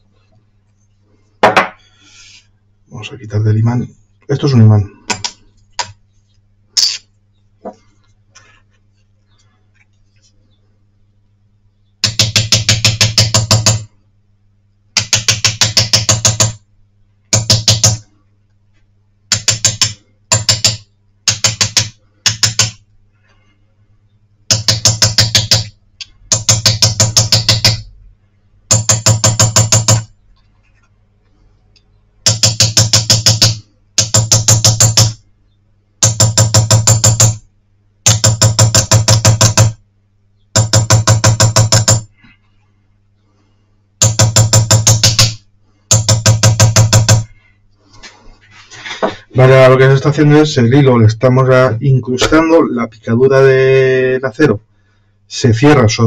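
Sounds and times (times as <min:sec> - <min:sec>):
hammer tapping metal punch: 0:12.0 - 0:13.9, 0:15.0 - 0:16.6, 0:17.3 - 0:18.0, 0:19.3 - 0:22.8, 0:24.5 - 0:27.8, 0:28.7 - 0:30.1, 0:32.3 - 0:35.2, 0:36.0 - 0:37.4, 0:38.1 - 0:39.8, 0:40.5 - 0:42.1, 0:44.0 - 0:47.3.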